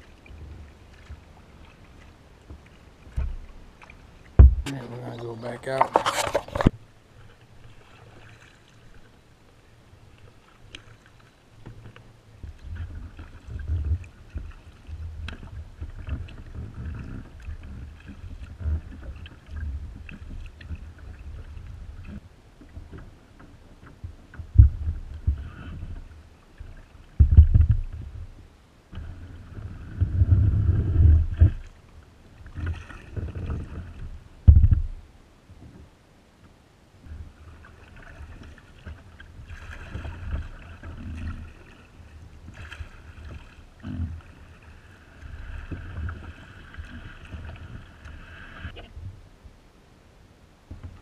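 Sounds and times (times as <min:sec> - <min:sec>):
paddle strokes and water splashing: 0:00.0 - 0:51.0
sharp knocks: 0:04.4 - 0:04.8
low rumble: 0:04.4 - 0:05.4.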